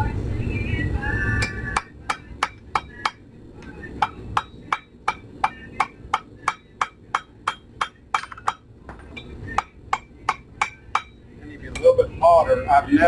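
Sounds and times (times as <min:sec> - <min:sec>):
hammer striking metal on anvil: 0:01.4 - 0:11.2.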